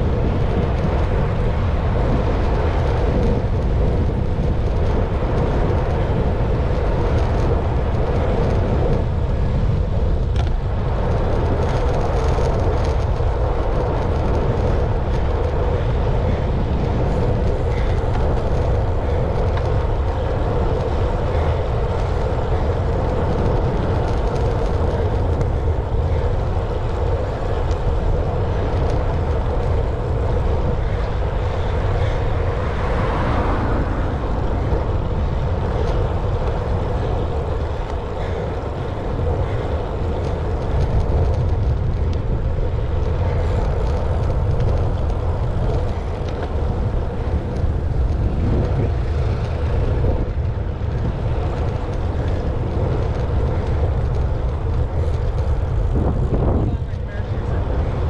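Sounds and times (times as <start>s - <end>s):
vehicle engine rumbling: 0.0s - 58.0s.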